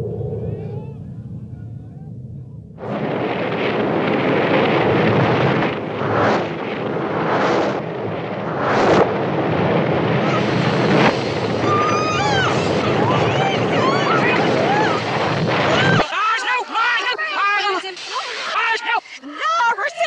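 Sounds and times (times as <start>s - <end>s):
fire roaring: 0.0s - 16.1s
high screeching cries: 11.6s - 15.0s.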